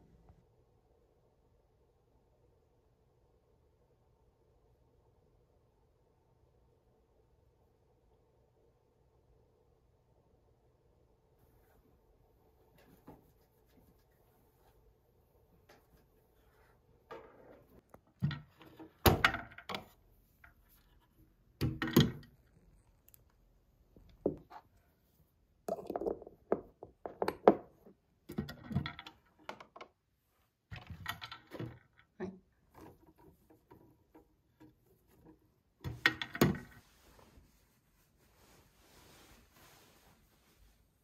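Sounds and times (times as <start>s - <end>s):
objects knocking and thudding: 17.0s - 20.6s, 25.7s - 30.0s, 30.7s - 36.9s.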